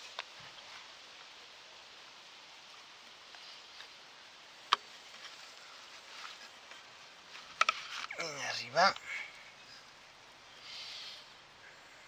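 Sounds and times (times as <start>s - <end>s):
outdoor background hiss: 0.0s - 12.0s
faint ticks: 2.7s - 8.2s.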